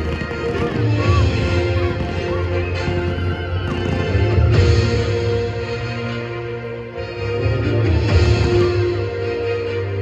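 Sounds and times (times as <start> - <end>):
music with sustained tones: 0.0 - 10.0.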